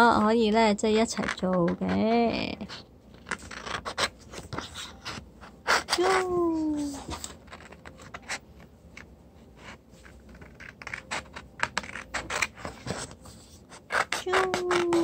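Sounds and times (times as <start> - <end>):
scissors cutting paper: 1.1 - 8.4, 10.1 - 15.0
person humming: 5.9 - 7.1, 14.3 - 15.0.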